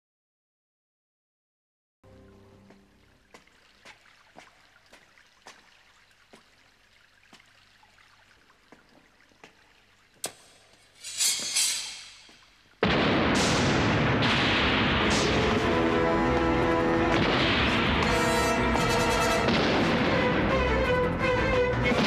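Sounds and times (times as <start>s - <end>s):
sword drawn from scabbard: 10.9s - 12.3s
loud explosion: 12.8s - 20.6s.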